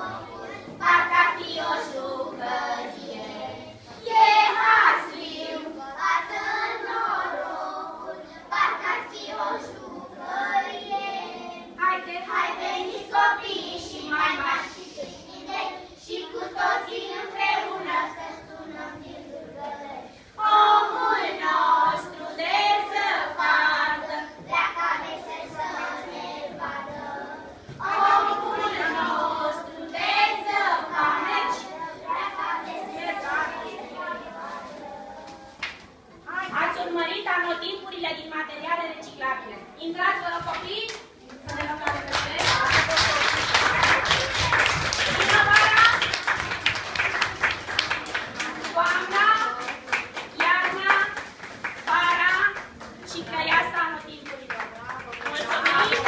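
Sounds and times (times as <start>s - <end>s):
children singing: 0.0s - 35.6s.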